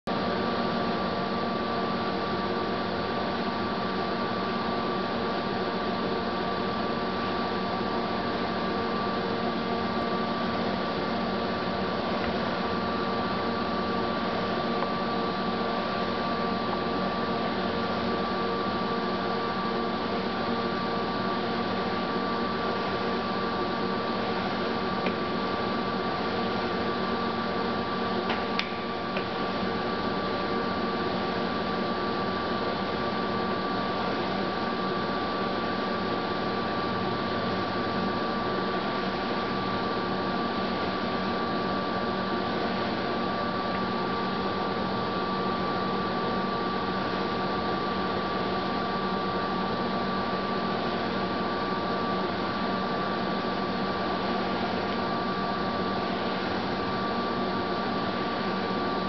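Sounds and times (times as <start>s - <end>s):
lathe humming with high whine: 0.1s - 59.0s
sharp click: 28.3s - 29.3s.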